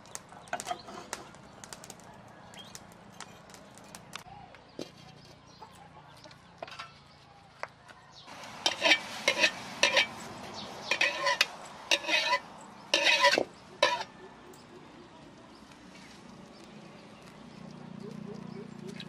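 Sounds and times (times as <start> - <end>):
metal ladle scraping a wok: 8.3 - 14.1.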